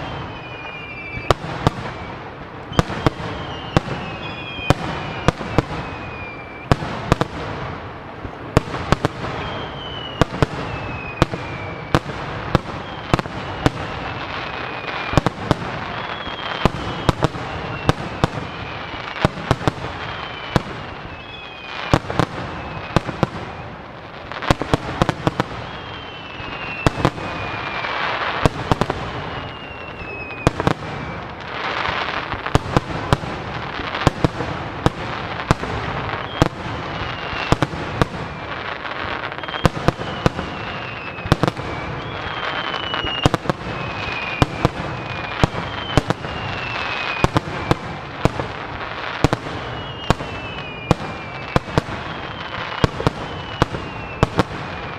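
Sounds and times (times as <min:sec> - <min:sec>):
falling whistles: 0:00.0 - 0:06.8, 0:09.2 - 0:24.4, 0:25.0 - 0:32.8, 0:36.0 - 0:48.1, 0:48.7 - 0:54.9
firework bangs: 0:00.0 - 0:54.9
firework crackle: 0:00.0 - 0:54.9.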